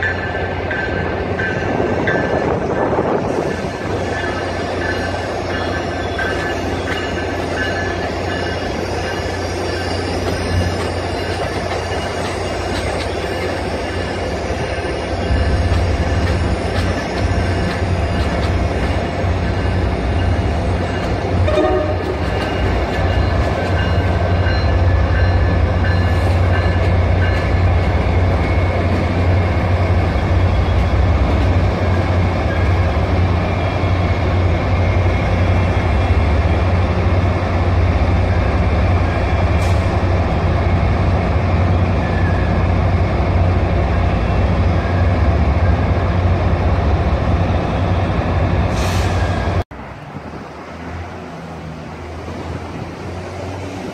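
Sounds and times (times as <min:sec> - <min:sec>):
diesel locomotive engine rumble: 0:00.0 - 0:53.9
rail noise: 0:00.0 - 0:53.9.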